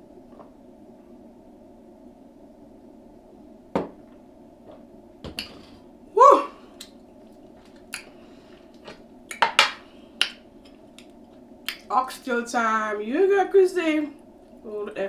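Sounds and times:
steady low hum: 0.0 - 15.0
eating clicks and wet smacks: 10.2 - 11.9.

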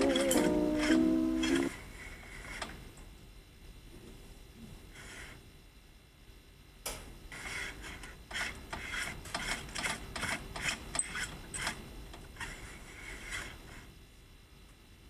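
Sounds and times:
short scraping strokes: 0.0 - 2.6.

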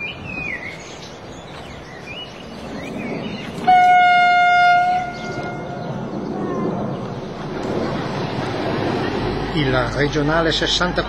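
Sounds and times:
approaching train noise: 0.0 - 11.0
train horn blast: 3.6 - 5.8.

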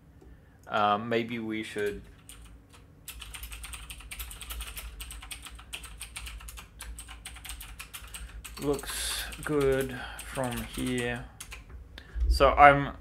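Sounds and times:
fast typing on keyboard: 1.8 - 11.7.

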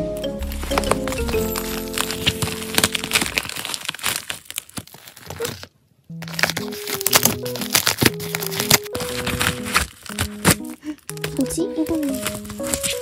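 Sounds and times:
light background melody: 0.0 - 3.3, 6.1 - 13.0
bubble mailer crinkling: 0.2 - 13.0.

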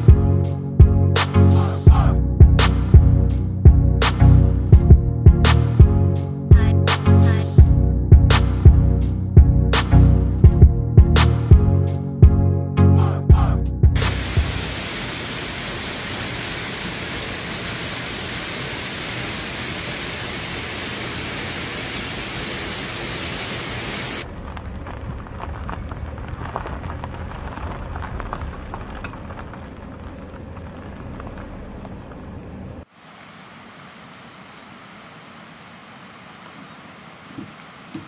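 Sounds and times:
low rumble with wind noise: 1.9 - 6.7, 7.6 - 12.4, 24.2 - 32.9
waterfall rushing: 14.0 - 24.2.

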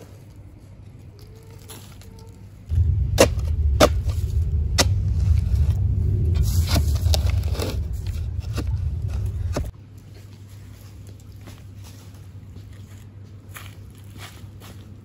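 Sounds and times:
loud steady low rumble: 2.7 - 9.7.

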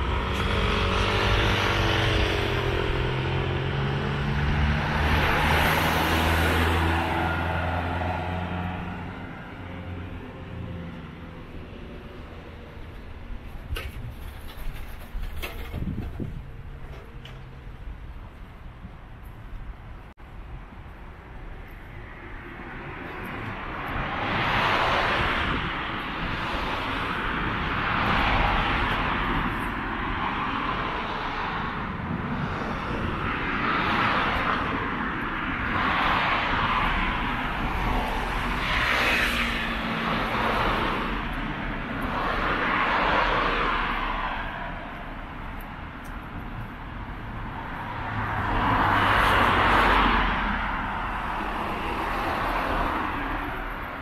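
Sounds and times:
cars passing: 0.0 - 14.4, 15.8 - 54.0
low traffic rumble: 0.0 - 54.0.

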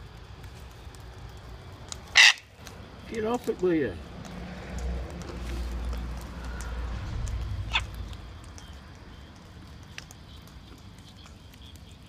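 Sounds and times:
cockatoo squawk: 2.1 - 2.5, 7.7 - 8.0.

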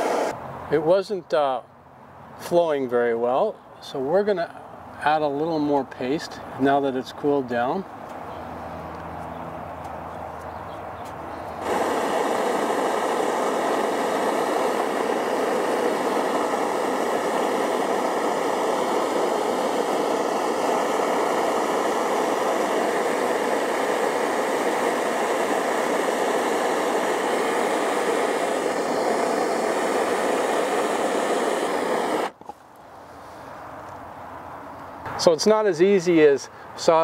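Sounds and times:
torch flame hissing: 0.0 - 0.4, 11.5 - 32.5.

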